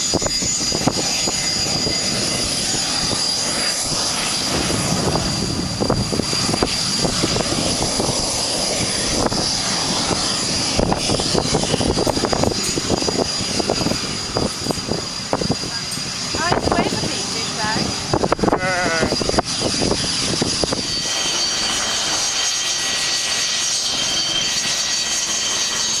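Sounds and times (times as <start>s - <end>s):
jet engine whine and rumble: 0.0s - 26.0s.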